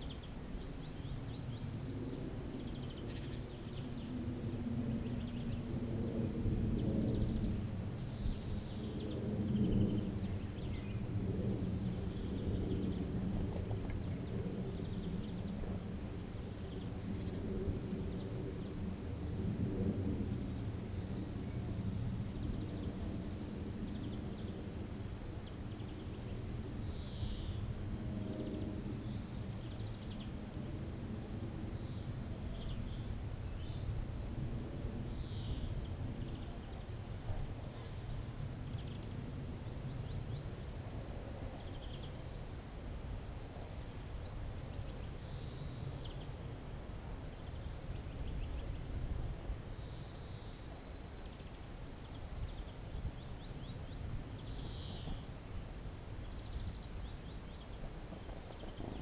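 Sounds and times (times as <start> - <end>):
small birds chirping: 43.7 - 59.0.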